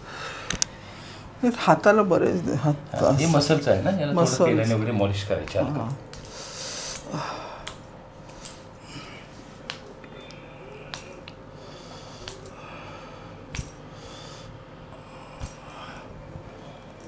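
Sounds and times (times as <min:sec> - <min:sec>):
faint breathing: 0:00.0 - 0:01.4, 0:06.2 - 0:17.0
thin steady hum: 0:00.0 - 0:17.0.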